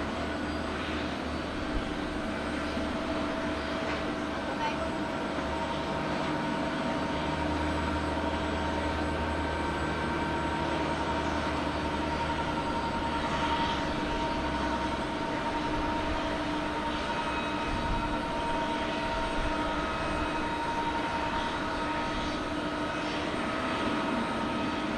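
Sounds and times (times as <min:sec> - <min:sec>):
jet engines whining at taxi power: 0:00.0 - 0:24.9.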